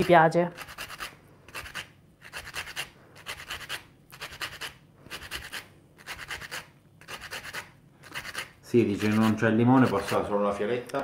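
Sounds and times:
lemon scraping on a grater: 0.0 - 10.4.

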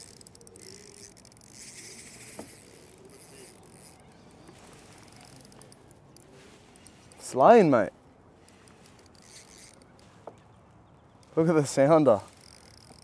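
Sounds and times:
bird cooing: 0.0 - 5.5.

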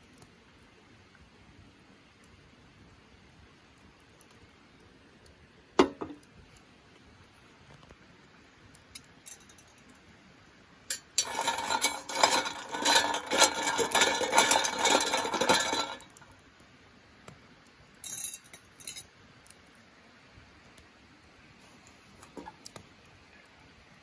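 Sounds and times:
ice cubes clinking in a steel tumbler: 10.9 - 16.2.

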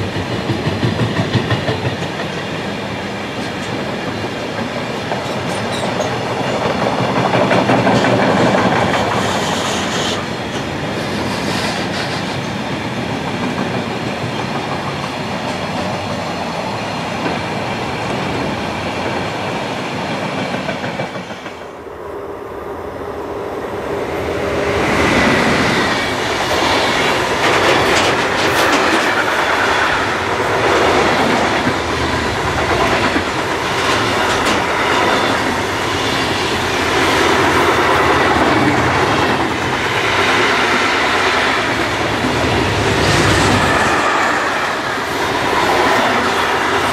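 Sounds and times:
freight train wheels clattering: 0.0 - 21.7, 24.5 - 46.9.

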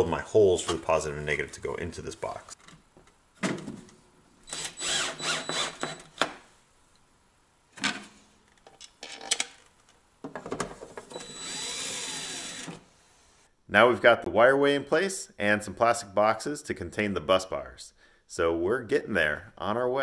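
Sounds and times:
power drill driving screws: 4.5 - 6.2, 11.1 - 13.5.

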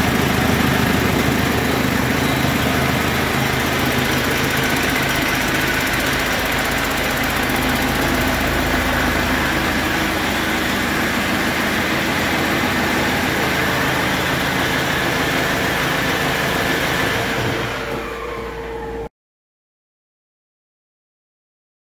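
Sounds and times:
diesel engine running: 0.0 - 19.1.

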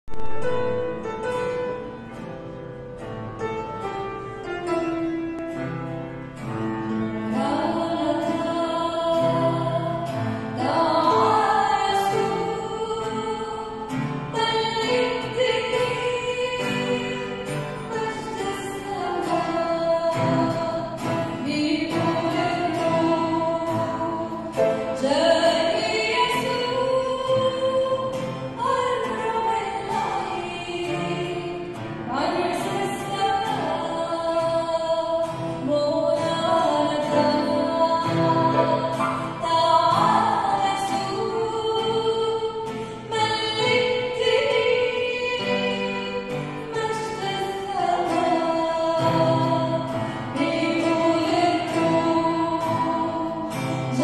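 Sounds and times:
acoustic guitar: 0.0 - 54.0
grand piano: 0.1 - 8.6
woman singing a hymn: 7.0 - 54.0.

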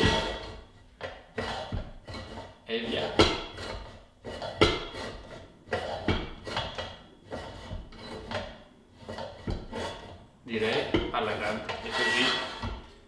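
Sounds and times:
metal scraping on steel post: 0.0 - 13.0
sharp metal knocks: 3.1 - 7.0.

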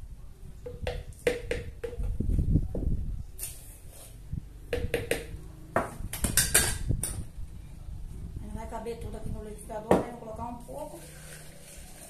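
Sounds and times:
metal spoon scraping metal cup: 10.9 - 12.0.

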